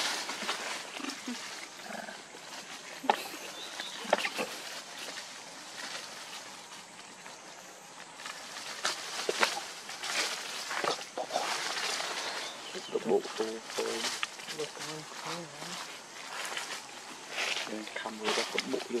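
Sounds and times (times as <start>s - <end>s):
monkeys grunting and squeaking: 0.9s - 2.3s, 2.9s - 5.1s.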